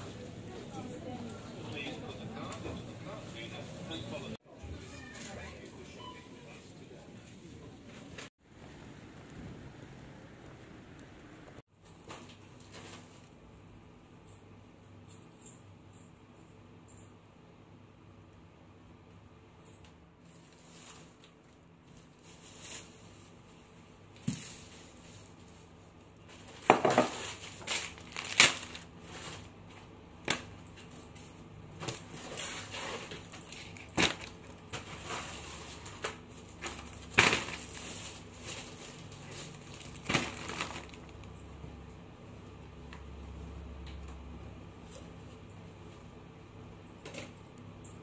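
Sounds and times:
items knocking on countertop: 26.6s - 27.3s
plastic packaging crinkling: 26.6s - 29.5s, 32.2s - 41.4s.

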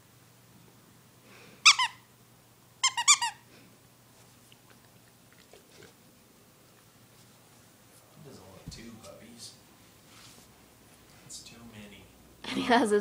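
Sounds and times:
toy squeaker squeaking: 1.7s - 2.0s, 2.8s - 3.4s.

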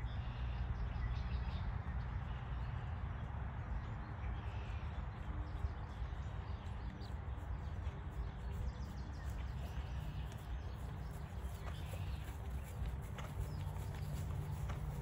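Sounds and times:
birds singing: 0.0s - 15.0s
horse hoofbeats on grass: 2.5s - 15.0s.

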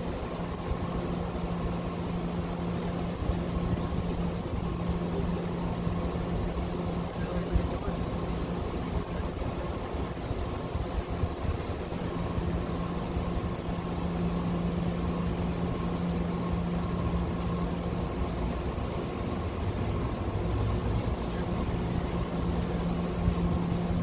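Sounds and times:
mechanical hum: 0.0s - 24.0s.

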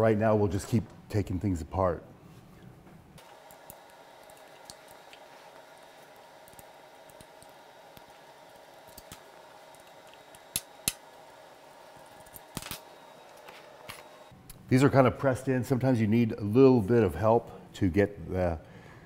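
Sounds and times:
faint steady hum: 0.3s - 15.2s.

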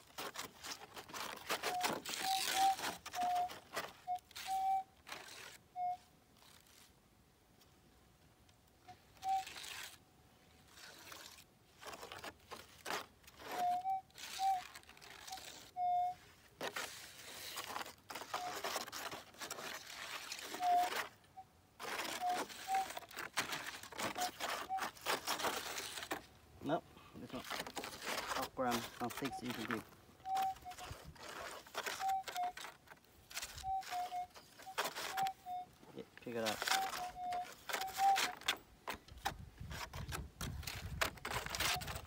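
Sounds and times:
scraping and rustling: 0.0s - 7.0s, 8.9s - 42.0s
metal detector beeps: 1.6s - 6.1s, 13.4s - 16.2s, 20.4s - 21.1s, 22.1s - 25.8s, 28.3s - 32.7s, 33.3s - 38.6s, 41.5s - 42.0s.

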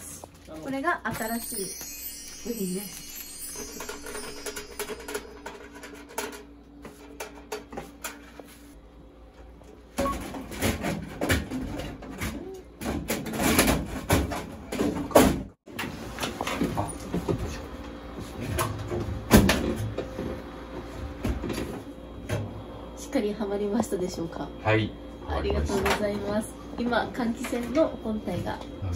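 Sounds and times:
fan unit knocking and clattering: 4.5s - 8.3s.

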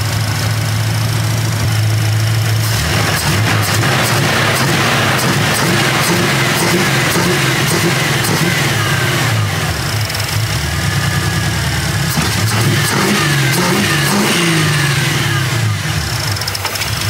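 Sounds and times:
engine revving and idling: 0.0s - 17.0s.

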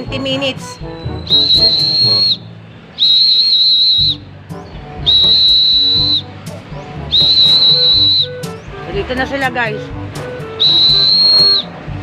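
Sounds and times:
high-pitched whistle blasts: 0.6s - 4.2s, 5.0s - 6.3s, 7.1s - 8.5s, 10.6s - 11.7s.

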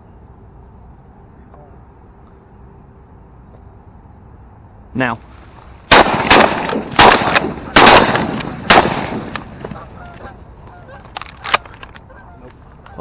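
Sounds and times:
shotgun blasts: 5.9s - 9.9s
geese honking: 9.6s - 13.0s.

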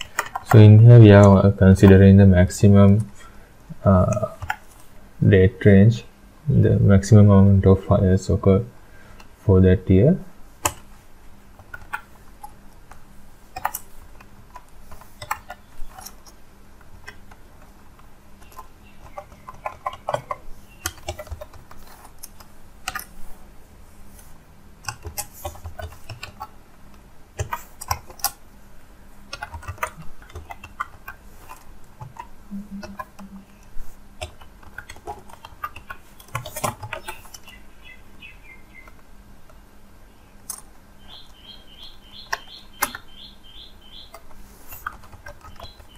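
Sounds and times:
typing on computer keyboard: 13.6s - 16.4s, 18.4s - 23.1s, 24.8s - 26.5s, 27.4s - 28.4s, 29.3s - 33.6s, 34.2s - 37.6s, 44.1s - 45.9s.

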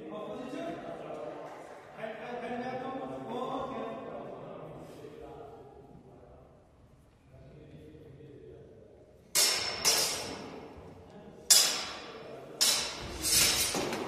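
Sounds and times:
swords clashing with echo: 9.3s - 10.8s, 11.5s - 14.0s.

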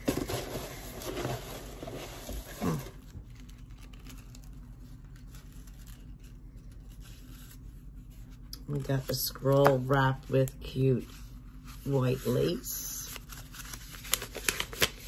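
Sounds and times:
packaging rustling and crinkling: 0.0s - 8.4s, 12.4s - 15.0s.

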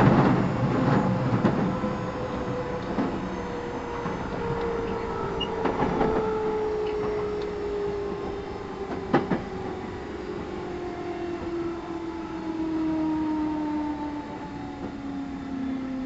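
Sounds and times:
train motor whine: 0.0s - 10.7s
rail noise: 0.0s - 16.0s.

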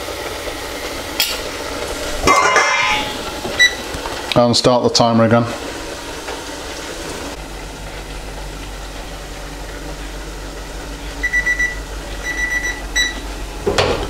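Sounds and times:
food hissing in deep fryer: 0.0s - 13.7s
kitchen timer beeping: 3.6s - 3.8s, 11.2s - 13.2s.

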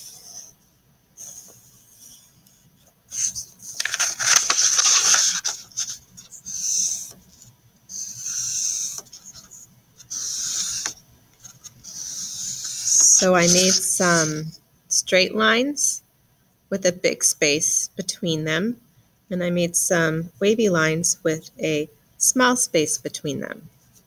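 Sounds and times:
pencil scratching on paper: 0.0s - 0.6s, 1.2s - 14.5s.

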